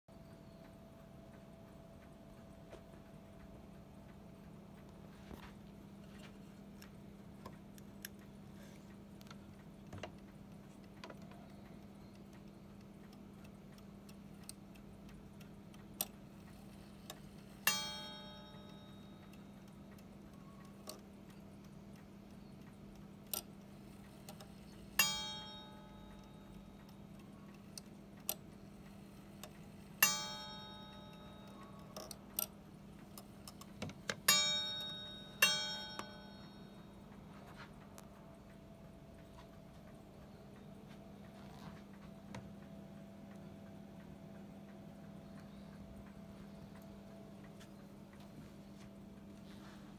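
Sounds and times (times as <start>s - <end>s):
light ticks and clicks: 0.1s - 49.9s
clock bell striking: 17.6s - 19.4s, 25.0s - 26.7s, 30.0s - 32.0s, 34.2s - 37.2s.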